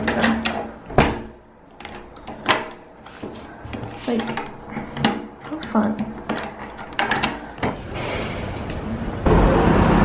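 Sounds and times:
door lock bolt clacking: 0.0s - 2.8s.

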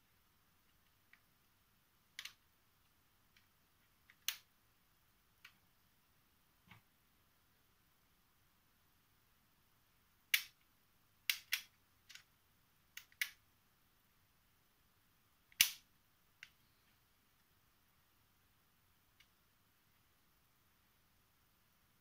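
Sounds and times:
plastic puzzle pieces clicking: 2.2s - 2.4s, 3.3s - 4.4s, 11.3s - 12.3s, 13.0s - 13.4s.

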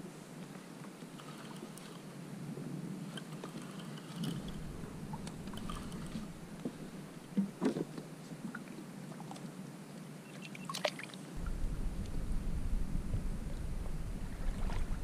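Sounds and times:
water lapping against a hull: 0.4s - 15.0s
water splashes: 3.1s - 9.5s, 10.3s - 12.3s, 13.4s - 15.0s
low rumble: 4.4s - 7.6s, 11.4s - 15.0s.

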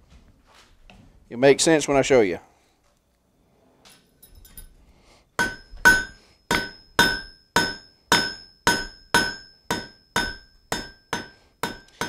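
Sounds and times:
hammer striking steel on anvil: 5.4s - 12.0s.

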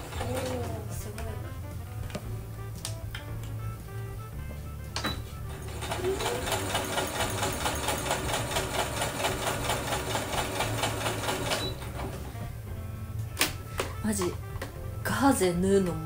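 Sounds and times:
sewing machine stitching: 0.0s - 0.7s, 5.5s - 12.2s.

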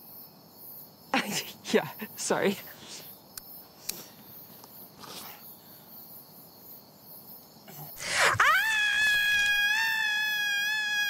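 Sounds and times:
woman screaming in pain: 8.0s - 11.0s.

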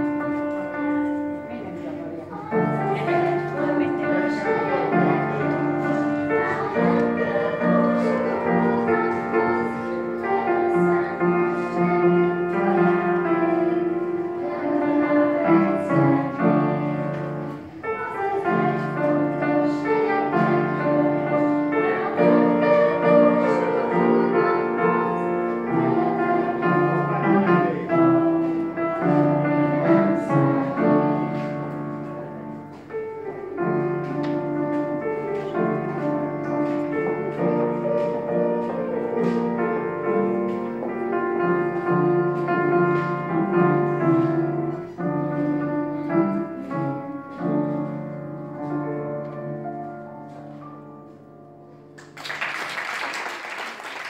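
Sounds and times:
piano music: 0.0s - 52.6s
group singing: 2.5s - 31.8s.

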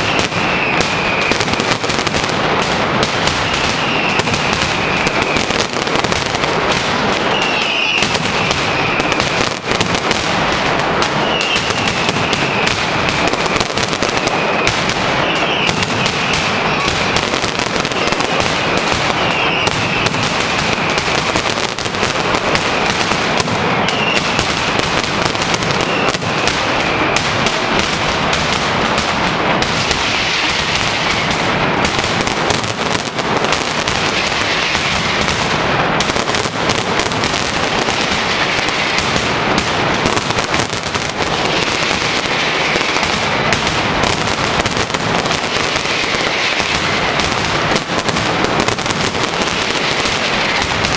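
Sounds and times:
firecrackers crackling with rapid bangs: 0.0s - 50.9s
high whistling: 3.4s - 5.4s, 7.3s - 9.2s, 11.2s - 12.7s, 14.2s - 17.2s, 18.0s - 20.1s, 23.8s - 24.4s.

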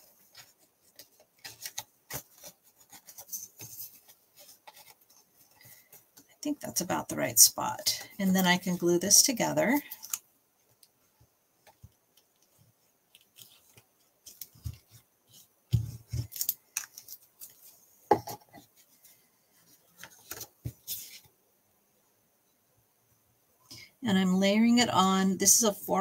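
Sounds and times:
paper rustling on a desk: 0.0s - 6.3s, 11.6s - 21.3s.

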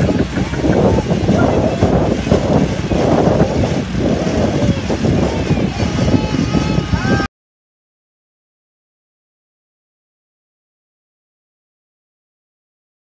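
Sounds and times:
outboard motor running: 0.0s - 7.3s
rushing air and water: 0.0s - 7.3s.

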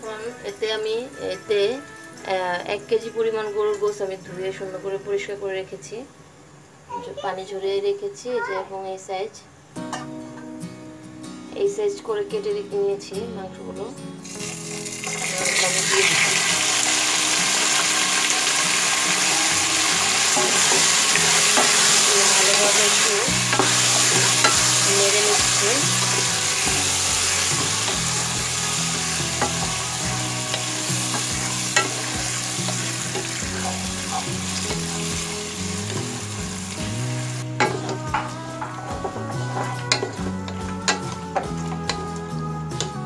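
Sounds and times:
beef sizzling in hot oil: 14.2s - 38.9s.

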